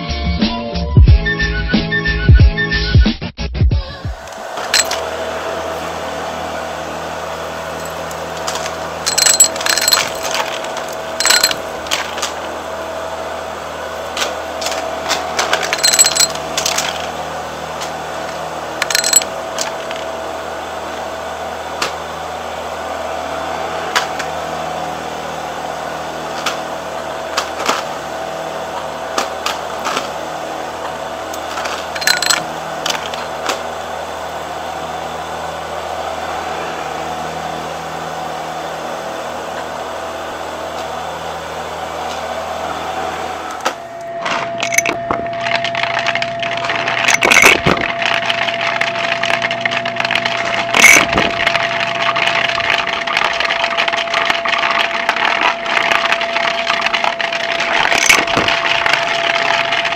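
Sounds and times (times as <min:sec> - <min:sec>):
vacuum cleaner motor running: 0:04.1 - 0:59.9
coins clinking and rattling: 0:04.7 - 0:05.0, 0:07.8 - 0:08.1, 0:09.1 - 0:11.6, 0:15.6 - 0:17.0, 0:18.8 - 0:20.0, 0:32.0 - 0:33.1, 0:44.6 - 0:45.2, 0:47.0 - 0:47.8, 0:50.7 - 0:51.3, 0:57.8 - 0:58.5.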